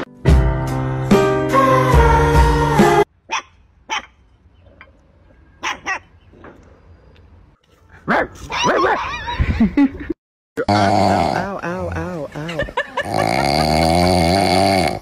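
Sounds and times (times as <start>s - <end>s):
music: 0.0s - 3.1s
puppy barking and yelping: 3.3s - 4.2s, 5.6s - 6.2s, 8.0s - 9.5s
puppy yips: 3.3s - 4.2s, 5.6s - 6.1s, 8.1s - 9.4s.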